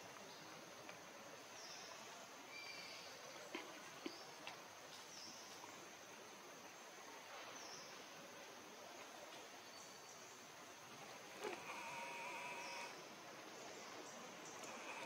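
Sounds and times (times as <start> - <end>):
steady hiss: 0.0 - 15.0
high-pitched bird or insect calls: 11.8 - 13.0.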